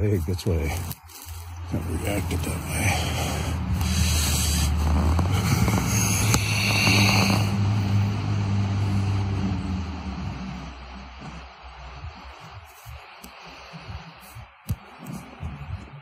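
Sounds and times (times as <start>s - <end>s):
rough rustling noise: 0.0s - 16.0s
loud low drone: 0.8s - 16.0s.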